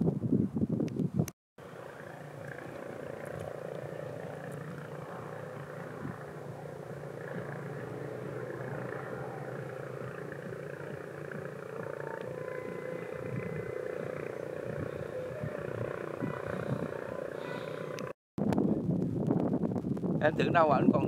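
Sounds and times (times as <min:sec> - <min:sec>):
motor humming steadily: 0:01.6 - 0:18.2.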